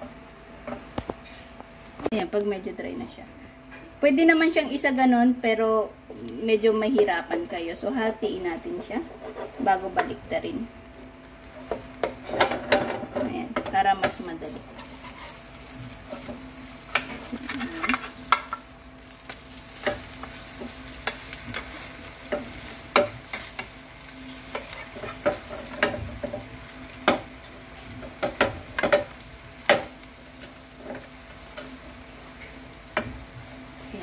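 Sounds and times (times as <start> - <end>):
egg sizzling: 6.0 - 13.1, 13.8 - 34.0
metal spatula scraping frying pan: 8.7 - 9.8, 14.7 - 15.4, 19.8 - 29.1.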